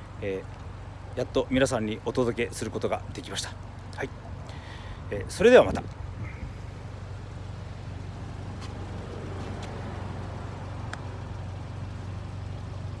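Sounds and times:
car engine idling: 0.0 - 13.0
faint ticks: 10.8 - 11.1.

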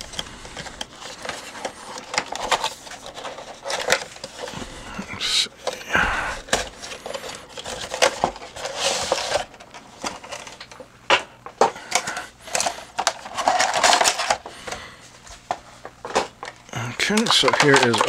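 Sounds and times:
plastic tray crinkling: 0.0 - 5.0, 11.6 - 18.0.

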